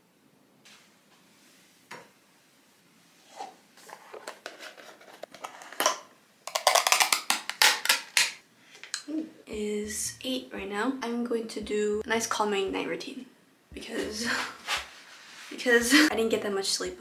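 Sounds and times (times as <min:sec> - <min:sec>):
plastic jar clicking: 0:05.8 - 0:09.0
rustling: 0:14.3 - 0:15.8.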